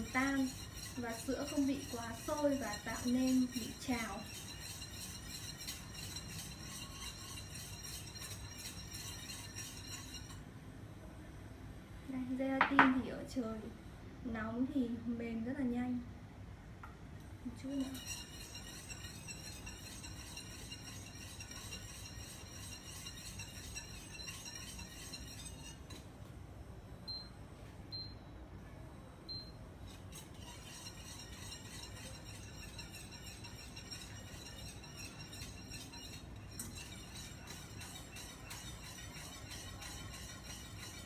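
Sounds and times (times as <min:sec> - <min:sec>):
whisk clinking in saucepan: 0:00.0 - 0:10.4, 0:17.6 - 0:26.0, 0:29.9 - 0:41.0
cooktop beeps: 0:29.3 - 0:29.6.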